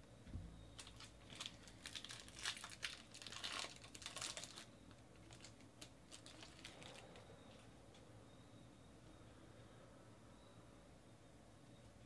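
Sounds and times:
foil wrapper crinkling and tearing: 0.8 - 7.6.

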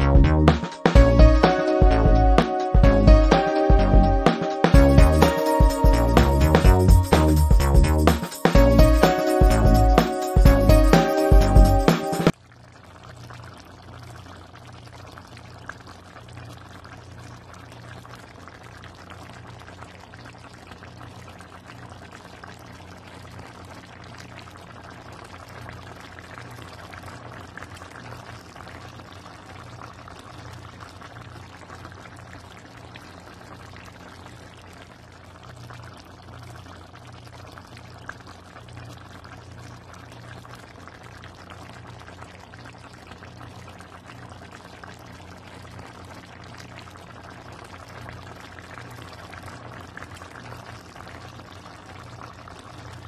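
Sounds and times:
food bubbling in a pan: 12.3 - 53.0.

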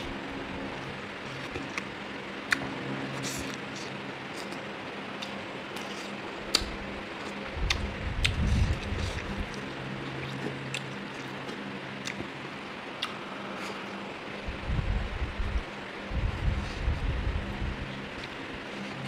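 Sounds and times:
faint steady hum: 0.0 - 19.0
wet chewing and smacking: 5.2 - 12.3, 13.0 - 14.0
low rumble: 14.4 - 18.2.

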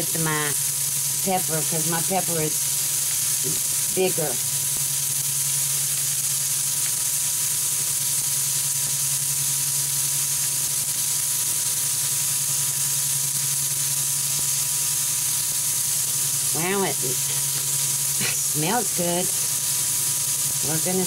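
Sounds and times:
patties sizzling on grill: 0.0 - 21.0
steady low hum: 15.8 - 21.0.

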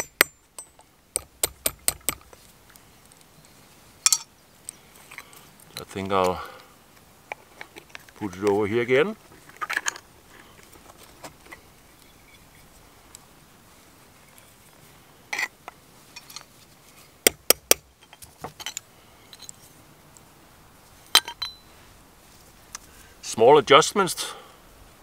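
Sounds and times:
sharp metal taps: 0.0 - 2.2
light metallic clinks: 4.0 - 4.3, 18.0 - 19.7, 21.1 - 21.7.

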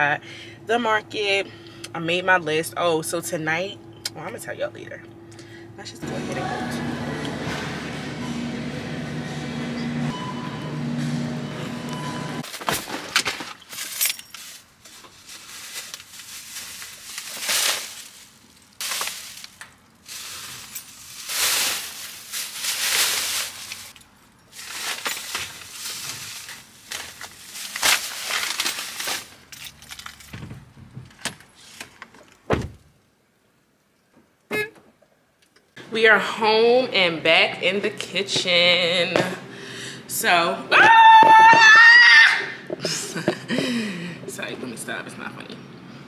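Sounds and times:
plastic bags rustling: 12.4 - 30.4
thump: 32.5 - 32.8.

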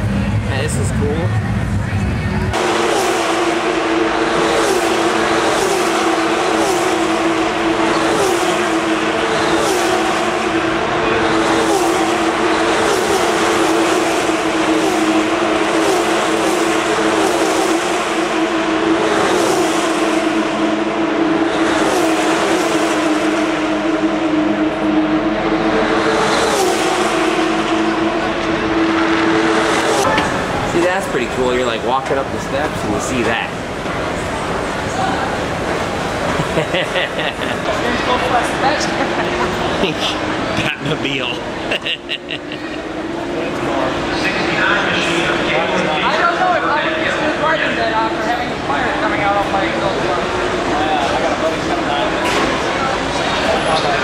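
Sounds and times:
racing cars passing at high revs: 0.0 - 54.0.

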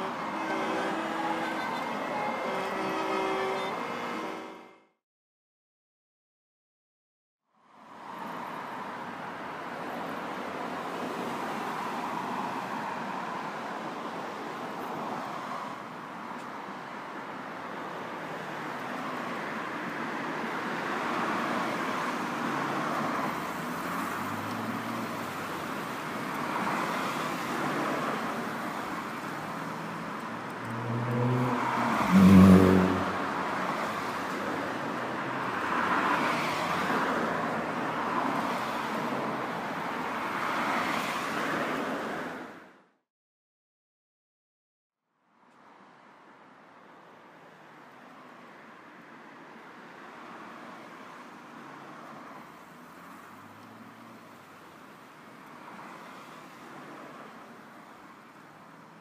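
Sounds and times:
traffic hum: 0.0 - 4.7, 7.8 - 42.8
street bustle: 0.0 - 4.8, 21.4 - 42.5
vehicle passing close: 29.6 - 34.1.

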